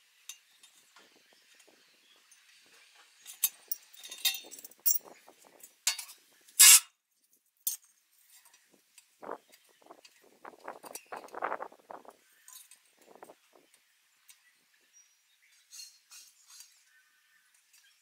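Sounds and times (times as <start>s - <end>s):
metallic clinks and clanks: 3.2s - 5.2s
metal cylinder scraping: 6.6s - 6.9s.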